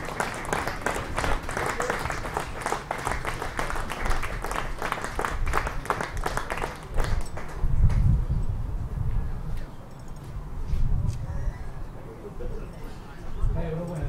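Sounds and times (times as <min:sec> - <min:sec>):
spectators applauding: 0:00.0 - 0:08.0.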